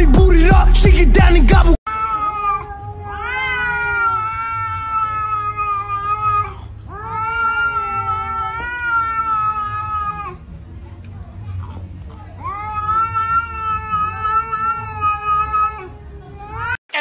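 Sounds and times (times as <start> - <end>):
cat yowling: 1.9 - 10.4, 12.4 - 16.8.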